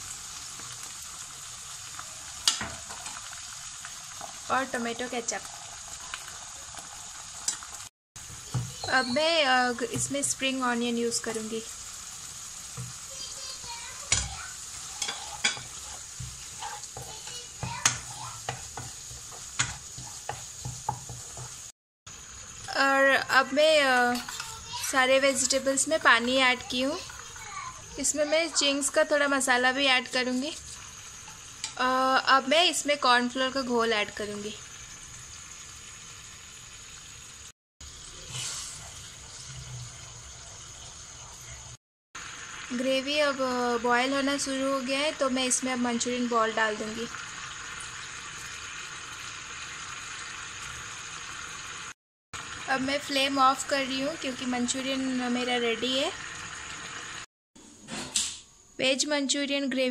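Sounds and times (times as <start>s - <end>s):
gravy simmering: 0.0s - 22.7s, 23.3s - 31.7s, 34.6s - 43.4s
vegetables sizzling in sauce: 0.0s - 57.3s
spatula scraping pan: 12.7s - 21.7s, 23.8s - 29.0s, 38.2s - 41.6s
spatula knocking on pan: 15.0s - 21.6s
liquid being poured and stirred: 23.9s - 29.0s, 37.8s - 41.8s.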